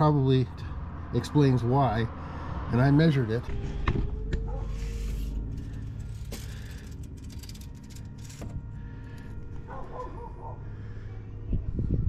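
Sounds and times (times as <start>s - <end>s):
steady low hum: 3.5s - 12.0s
tape measure blade rustle: 4.7s - 9.3s.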